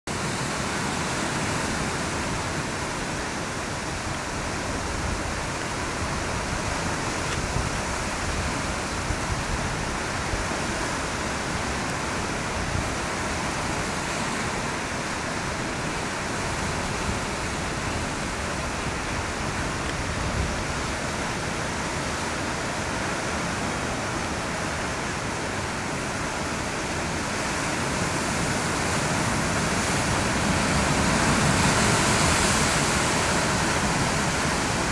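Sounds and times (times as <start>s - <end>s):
wind rumble on microphone: 0.2s - 34.9s
surf breaking over rocks: 25.9s - 34.9s.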